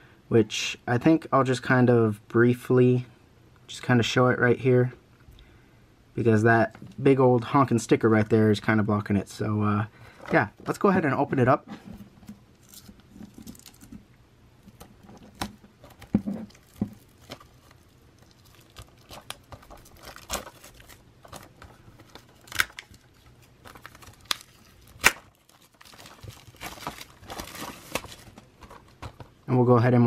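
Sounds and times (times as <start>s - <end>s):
plastic wrap crackling and tearing: 12.6s - 14.0s, 14.6s - 29.4s.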